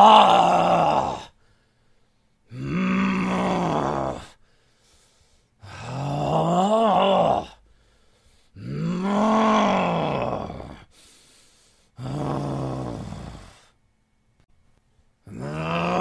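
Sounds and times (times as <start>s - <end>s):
man groaning angrily: 0.0s - 1.4s, 2.5s - 4.4s, 5.6s - 7.6s, 8.6s - 10.9s, 15.3s - 16.0s
short breath: 1.3s - 2.5s, 4.3s - 5.8s, 7.6s - 8.6s, 10.8s - 12.0s.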